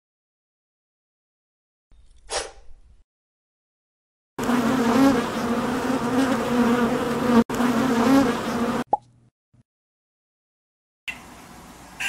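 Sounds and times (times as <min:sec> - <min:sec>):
honeybees buzzing: 0:04.4 - 0:08.9.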